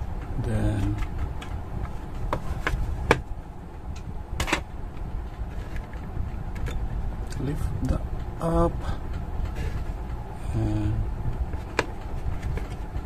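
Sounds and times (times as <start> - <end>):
low background rumble: 0.0 - 13.0
plastic case clicks and knocks: 2.3 - 3.3.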